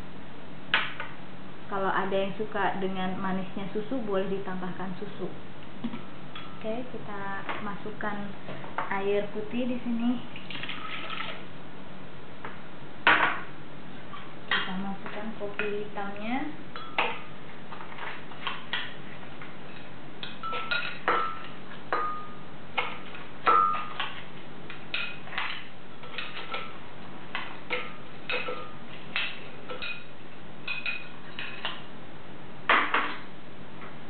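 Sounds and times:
spoon clinking on ceramic bowl: 16.8s - 17.3s, 20.2s - 22.4s, 23.4s - 24.1s, 27.7s - 30.1s.

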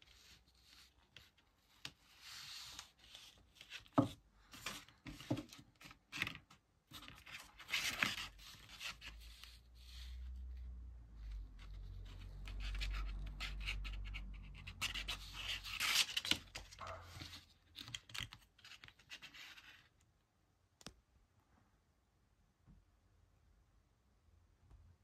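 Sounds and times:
scratching and rubbing: 0.0s - 3.9s, 11.2s - 19.9s.

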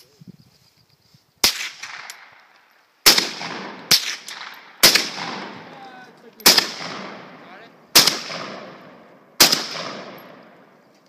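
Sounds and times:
rifle shots with echo: 1.4s - 2.4s, 3.0s - 10.8s.

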